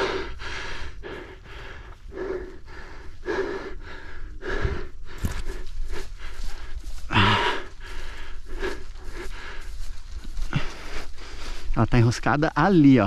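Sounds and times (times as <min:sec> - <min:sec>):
person breathing hard: 0:00.0 - 0:11.8.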